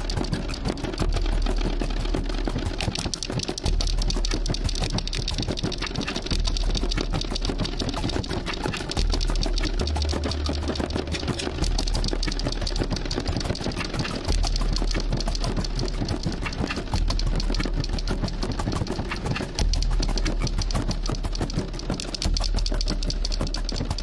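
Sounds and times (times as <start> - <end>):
rapid electronic clicking texture: 0.0 - 24.0.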